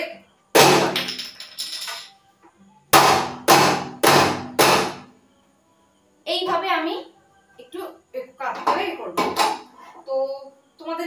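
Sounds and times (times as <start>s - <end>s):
sharp metallic bangs: 0.6s - 1.4s, 2.9s - 5.1s.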